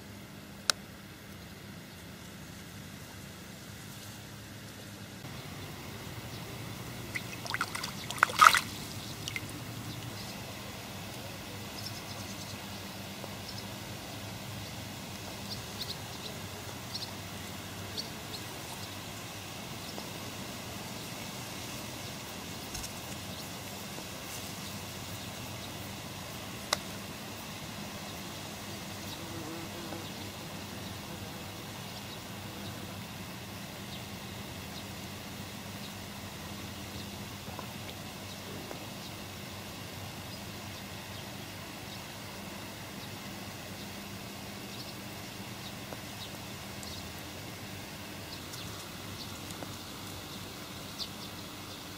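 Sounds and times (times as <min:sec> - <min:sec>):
faint water drips: 0:06.3 - 0:10.4
water splashing among reeds: 0:06.9 - 0:10.2.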